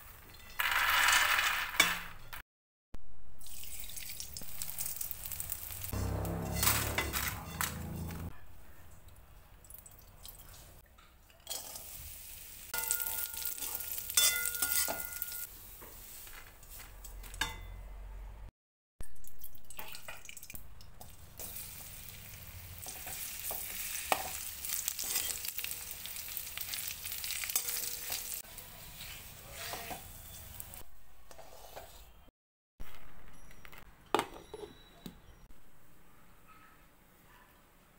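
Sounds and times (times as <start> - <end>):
fruit sizzling in oil: 3.4 - 6.4, 21.4 - 30.8
spatula scraping a pan: 22.8 - 25.6, 27.2 - 32.2.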